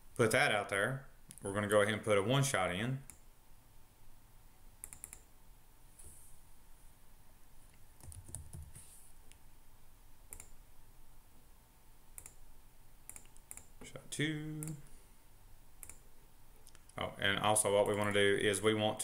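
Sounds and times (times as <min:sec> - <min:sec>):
keyboard typing: 0:04.8 - 0:05.3, 0:08.0 - 0:08.8, 0:10.3 - 0:10.6, 0:12.2 - 0:12.4, 0:13.1 - 0:13.8, 0:15.8 - 0:16.0
mouse clicks: 0:04.8 - 0:05.3, 0:10.3 - 0:10.6, 0:12.2 - 0:12.4, 0:13.1 - 0:13.8, 0:15.8 - 0:16.0.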